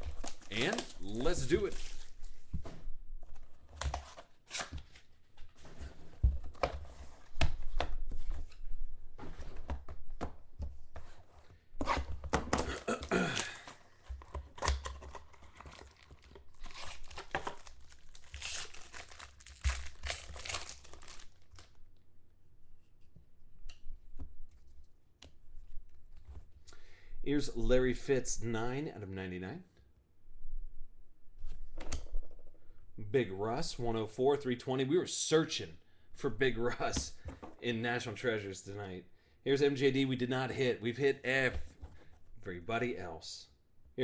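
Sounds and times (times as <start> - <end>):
cards being handled: 0.0 - 2.5, 13.4 - 21.8
foil wrapper tearing and crinkling: 15.1 - 21.8.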